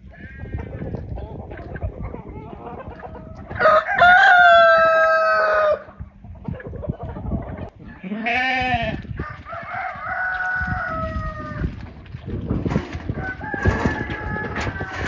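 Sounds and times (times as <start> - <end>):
rooster crowing: 3.5 - 5.9, 9.2 - 11.7, 13.1 - 15.0
sheep hooves on stony ground: 8.8 - 14.9.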